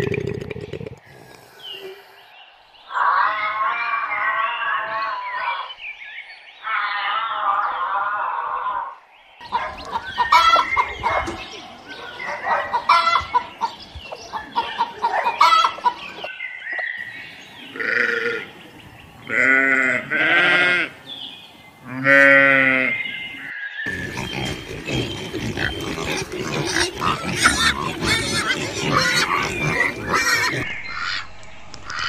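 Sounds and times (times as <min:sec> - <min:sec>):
chickens clucking: 0:09.4 - 0:16.8, 0:23.9 - 0:31.2
livestock bleating: 0:17.7 - 0:18.5, 0:19.3 - 0:21.0, 0:21.8 - 0:23.0.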